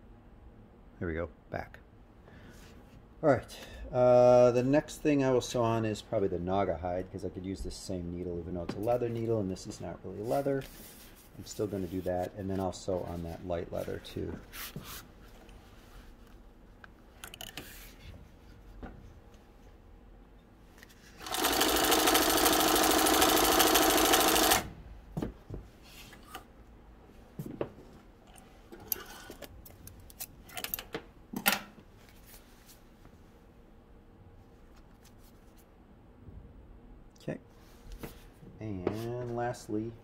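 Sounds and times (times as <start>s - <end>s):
industrial sewing machine stitching: 21.2s - 24.7s.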